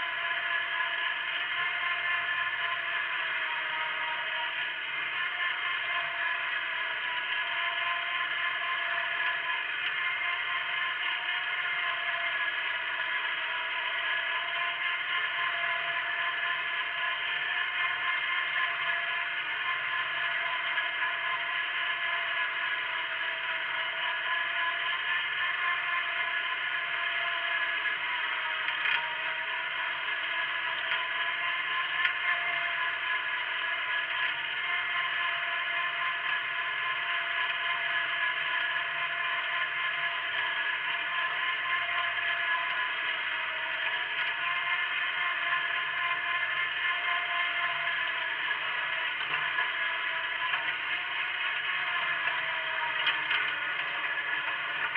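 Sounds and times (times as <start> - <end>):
garden tractor engine under load: 0.0 - 54.9.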